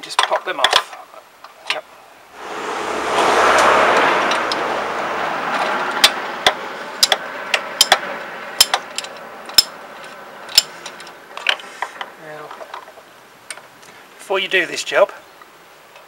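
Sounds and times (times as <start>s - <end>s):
passing vehicle: 2.3s - 11.4s.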